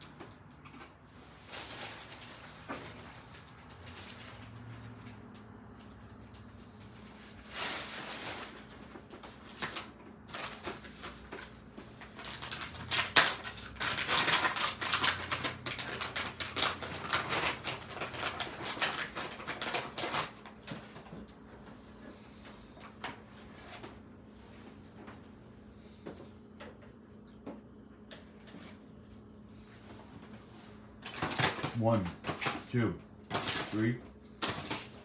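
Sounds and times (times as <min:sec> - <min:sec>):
paper bag crinkling: 0:00.2 - 0:05.1, 0:07.1 - 0:21.1, 0:30.4 - 0:32.7, 0:33.3 - 0:35.0
plastic bag rustling: 0:00.3 - 0:05.2, 0:07.0 - 0:25.0, 0:29.6 - 0:32.7, 0:33.3 - 0:35.0.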